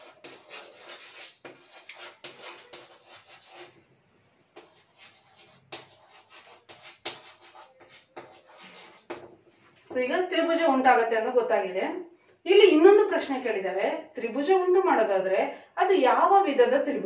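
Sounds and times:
chalk scratching on blackboard: 0.0s - 3.8s, 4.6s - 10.0s
chalk tapping on board: 0.0s - 3.8s, 4.6s - 9.4s.

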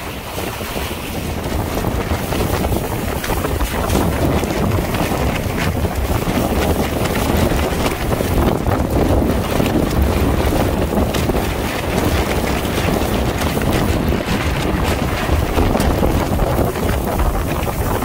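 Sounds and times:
bow wave rushing along hull: 0.0s - 18.0s
wind buffeting microphone: 0.0s - 18.0s.

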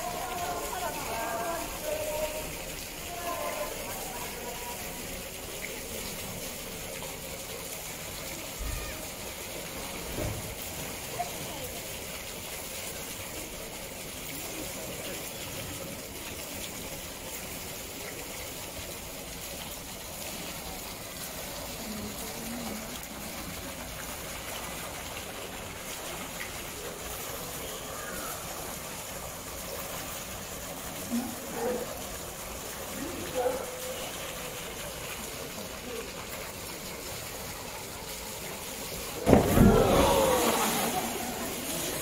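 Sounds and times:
faint voices: 0.0s - 9.7s, 30.9s - 42.0s
running water rushing: 0.0s - 42.0s.

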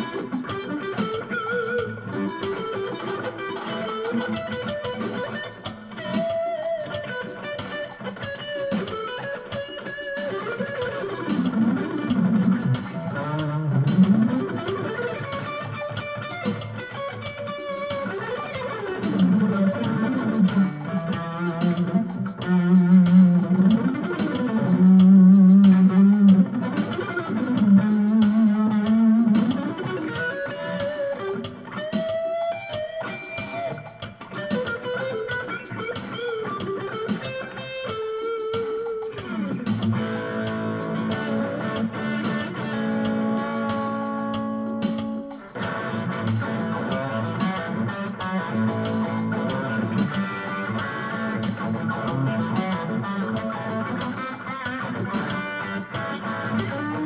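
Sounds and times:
drum machine groove: 0.0s - 57.0s
electric guitar lead line: 0.0s - 57.0s.

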